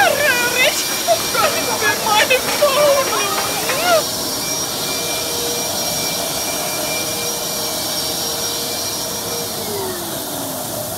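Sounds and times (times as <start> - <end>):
vacuum cleaner running: 0.0 - 10.9.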